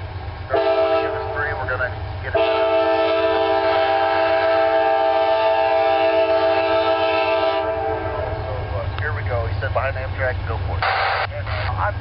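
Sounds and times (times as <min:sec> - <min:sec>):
locomotive air horn: 0:00.5 - 0:01.6, 0:02.3 - 0:08.5.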